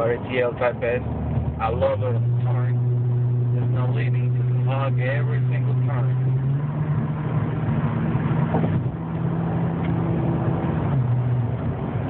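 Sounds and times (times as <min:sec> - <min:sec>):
car engine droning: 0:00.0 - 0:12.0.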